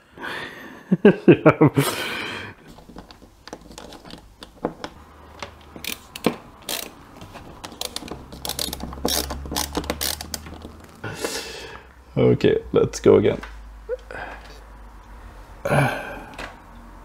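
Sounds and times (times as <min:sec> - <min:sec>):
sharp clicks and ratcheting: 0:02.8 - 0:11.0
electric screwdriver motor hum: 0:07.8 - 0:10.6.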